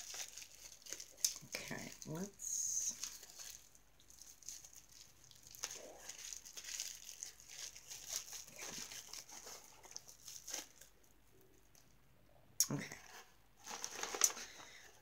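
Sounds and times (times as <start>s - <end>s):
cloth bag rustling: 2.9s - 10.9s.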